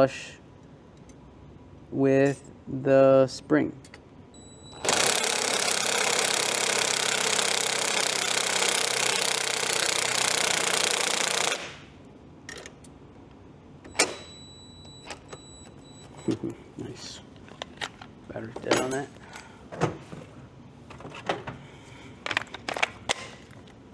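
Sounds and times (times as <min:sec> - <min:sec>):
cordless impact driver running: 0:04.8 - 0:11.8.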